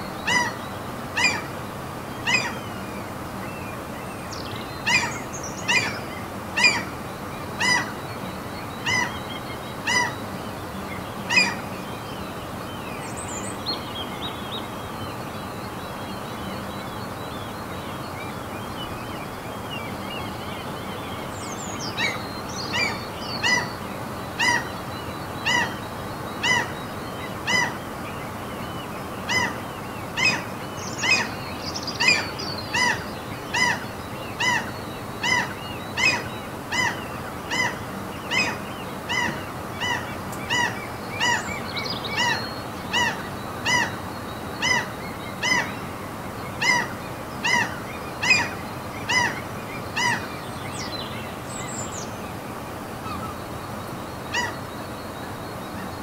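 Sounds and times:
steady background hiss: 0:00.0 - 0:56.0
seagull calling: 0:00.2 - 0:00.6, 0:01.2 - 0:01.5, 0:02.2 - 0:02.7, 0:04.8 - 0:07.0, 0:07.6 - 0:08.0, 0:08.8 - 0:09.2, 0:09.8 - 0:10.2, 0:11.3 - 0:11.7, 0:22.0 - 0:24.8, 0:25.4 - 0:25.8, 0:26.4 - 0:27.8, 0:32.0 - 0:45.9, 0:46.6 - 0:50.4, 0:54.3 - 0:54.7.

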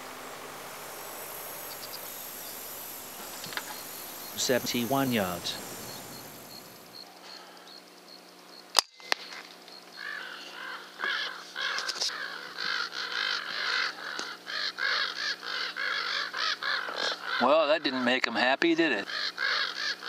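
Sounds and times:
crows cawing: 0:10.0 - 0:17.6, 0:19.0 - 0:20.0.

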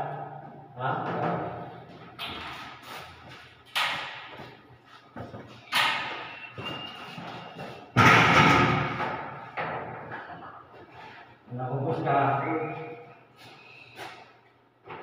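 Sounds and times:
door banging in frame: 0:08.0 - 0:10.0.

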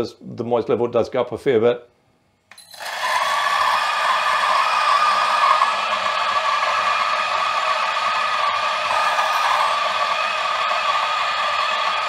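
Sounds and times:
coffee grinder whirring: 0:02.6 - 0:12.0.

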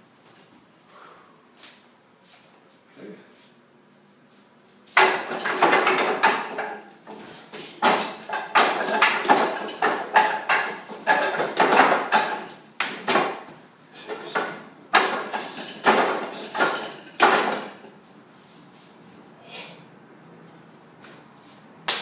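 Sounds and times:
hands striking wooden dummy: 0:05.0 - 0:17.8.

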